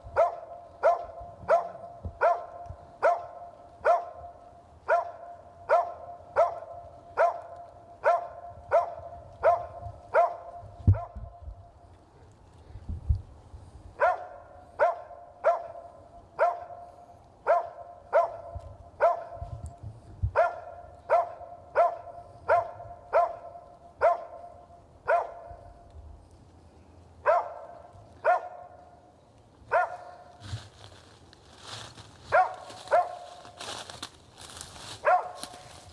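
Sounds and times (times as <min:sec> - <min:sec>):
dog barking: 0:00.1 - 0:11.2, 0:14.0 - 0:19.6, 0:20.3 - 0:25.7, 0:27.2 - 0:29.0, 0:29.7 - 0:30.4, 0:32.3 - 0:33.5, 0:35.0 - 0:35.8.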